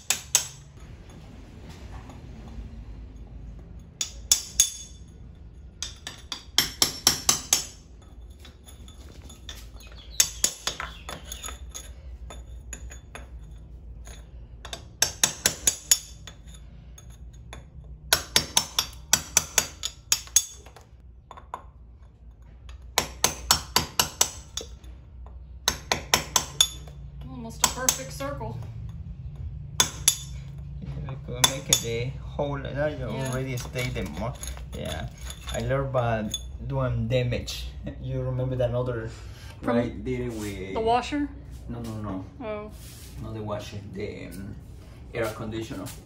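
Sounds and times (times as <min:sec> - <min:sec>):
hammer striking a chisel: 0:00.0 - 0:00.9, 0:03.6 - 0:21.7, 0:22.6 - 0:27.0, 0:27.6 - 0:28.3, 0:29.8 - 0:30.6, 0:31.2 - 0:32.0.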